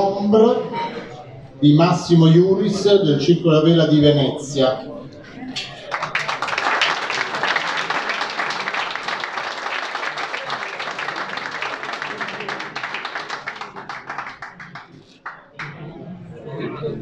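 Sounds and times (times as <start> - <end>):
audience applauding: 5.8 - 15.8.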